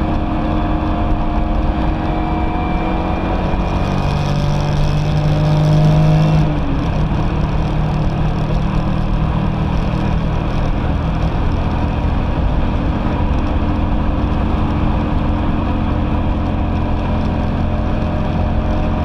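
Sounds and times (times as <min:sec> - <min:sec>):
car engine under load: 0:00.0 - 0:19.0
wind and road noise: 0:00.0 - 0:19.0.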